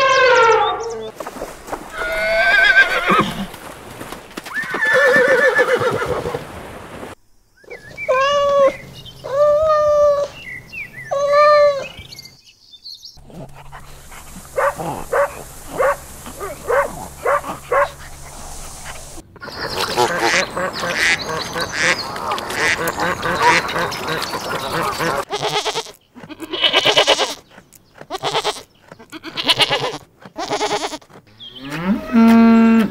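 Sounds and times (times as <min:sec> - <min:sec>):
horse whinnying: 0:01.9 - 0:03.6, 0:04.5 - 0:06.4
dog barking: 0:14.5 - 0:18.0.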